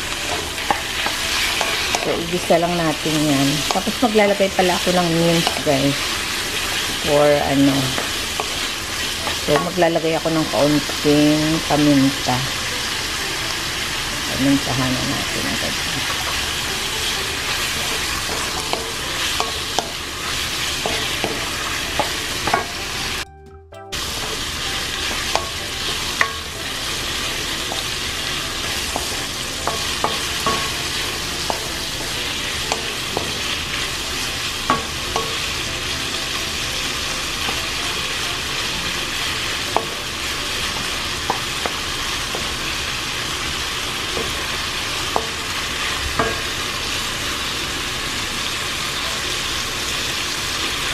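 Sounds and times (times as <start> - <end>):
chicken and onion sizzling in oil: 0.0 - 23.2, 23.9 - 50.9
wooden spoon knocking on pan: 28.6 - 33.6, 34.7 - 35.6.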